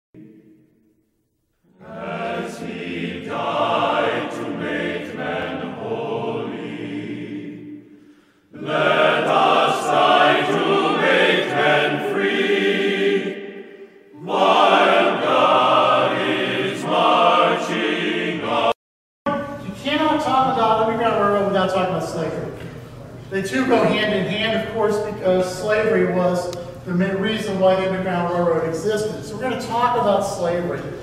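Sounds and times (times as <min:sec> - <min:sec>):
choir singing: 0:01.7 - 0:18.8.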